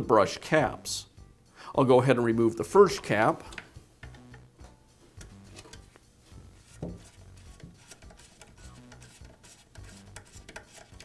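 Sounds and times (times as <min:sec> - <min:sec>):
screwdriver scraping and clicking: 0:05.2 - 0:05.9, 0:06.6 - 0:11.0.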